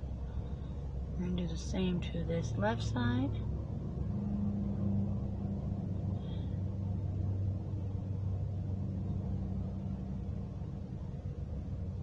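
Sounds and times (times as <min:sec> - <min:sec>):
car engine hum: 0:00.0 - 0:12.0.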